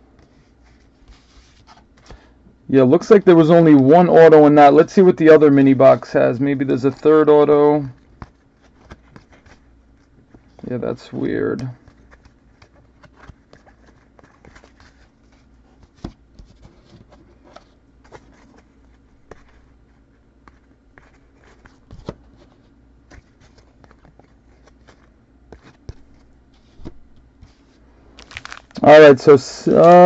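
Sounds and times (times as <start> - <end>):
faint steady hum: 0.0 - 30.0
card packs handled on table: 6.8 - 28.9, 29.6 - 30.0.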